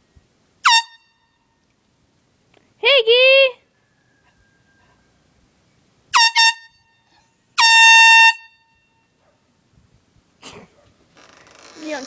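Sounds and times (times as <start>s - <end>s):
air horn blasts: 0.6s - 1.3s, 6.1s - 9.0s.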